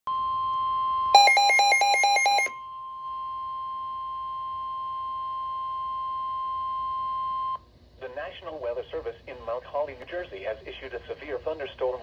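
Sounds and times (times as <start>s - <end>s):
steady high alarm tone: 0.2s - 7.2s
rapid beeps: 1.2s - 2.5s.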